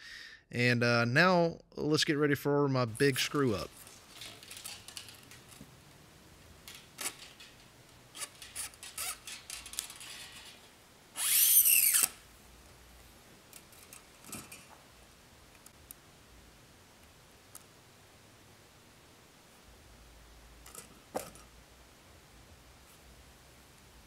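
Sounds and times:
guitar string scraping through: 6.8s - 12.2s.

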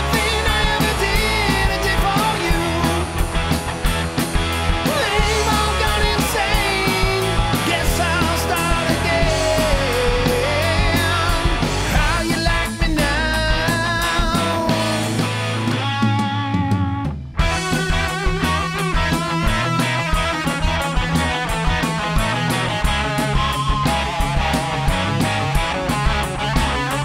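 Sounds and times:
person singing: 0.0s - 3.2s, 4.8s - 15.3s
drums: 0.0s - 27.0s
electric guitar: 0.0s - 27.0s.

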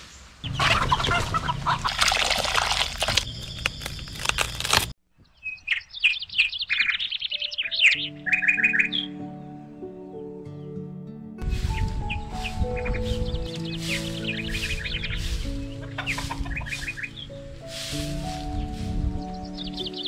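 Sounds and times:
small birds chirping: 0.0s - 9.3s, 11.4s - 20.0s
chickens and chicks calling: 0.4s - 2.0s, 11.6s - 20.0s
gentle music: 7.2s - 20.0s.

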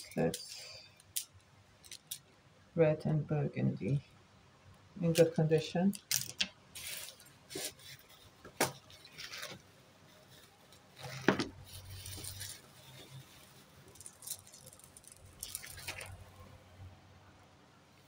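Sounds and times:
jewellery clinking: 0.0s - 2.3s, 13.9s - 16.2s
plastic bag crinkling: 6.0s - 16.4s.

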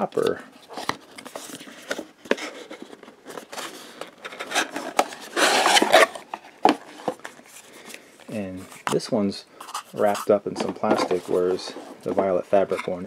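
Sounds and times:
rustling scrape of packaging: 0.2s - 8.0s, 8.6s - 13.0s
cardboard boxes tapping and sliding: 10.0s - 13.0s.

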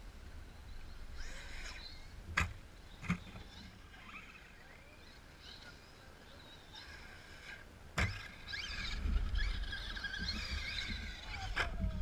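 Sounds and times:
faint bird chirps: 0.4s - 2.2s, 2.8s - 7.6s
toy truck landing thud: 8.0s - 8.3s.

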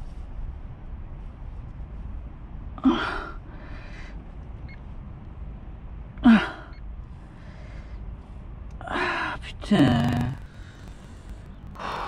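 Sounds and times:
soft breath: 0.0s - 5.0s, 6.3s - 9.4s.

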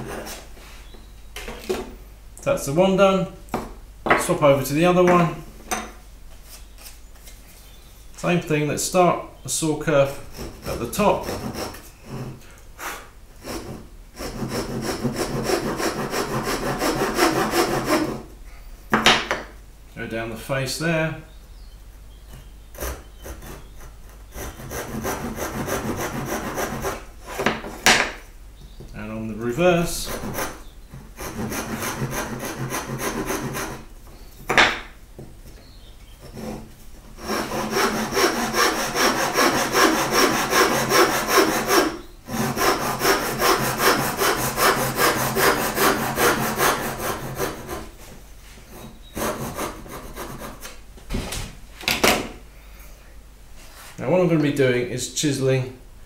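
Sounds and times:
hand saw cutting wood: 10.3s - 12.4s, 13.4s - 18.2s, 22.8s - 27.6s, 29.8s - 33.9s, 36.2s - 48.0s, 48.7s - 50.7s.

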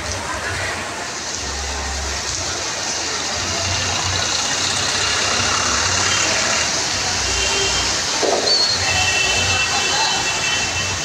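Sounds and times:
traffic engines running: 0.0s - 11.0s
tyres hissing on wet road: 0.0s - 11.0s.

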